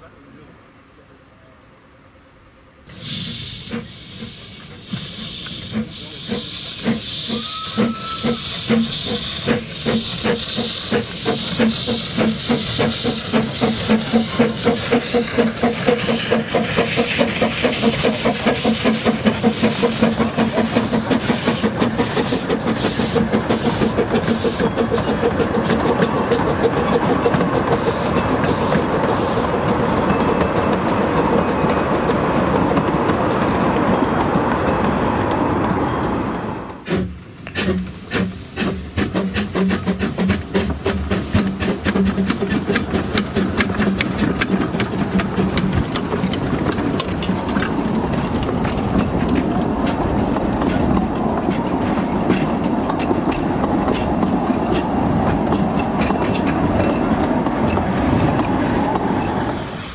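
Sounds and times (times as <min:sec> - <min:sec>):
steam hissing: 0:02.8 - 0:31.5, 0:35.4 - 0:59.9
steam locomotive chuffing: 0:02.8 - 0:59.9
train wheels clattering over rail joints: 0:03.3 - 0:35.0, 0:36.8 - 0:59.7
steam whistle toot: 0:05.5 - 0:09.6.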